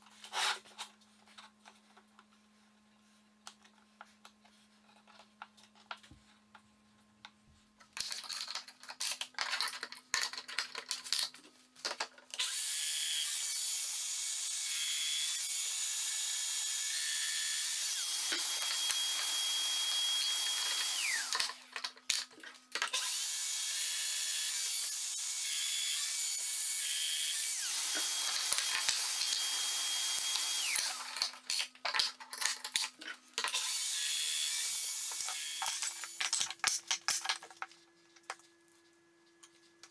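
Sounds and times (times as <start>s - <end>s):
power tool motor whining: 12.4s - 21.6s, 22.9s - 31.3s, 33.5s - 36.2s.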